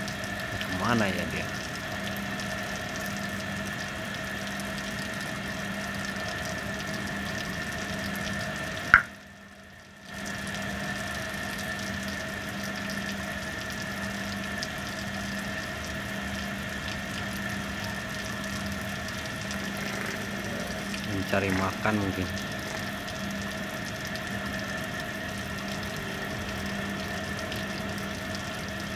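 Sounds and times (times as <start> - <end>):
steady droning tones: 17.1 - 28.9.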